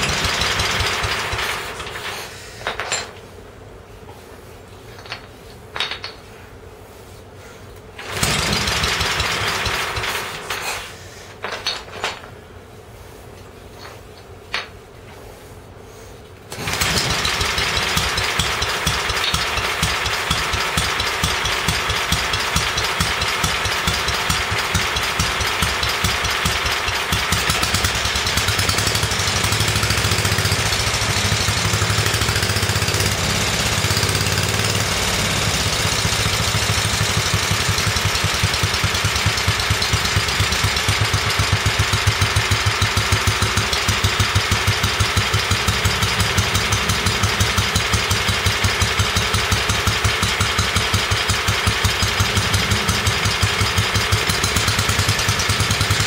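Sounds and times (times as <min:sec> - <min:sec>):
single-cylinder engine running: 0:00.0 - 0:02.1, 0:08.0 - 0:10.6, 0:16.5 - 0:56.0.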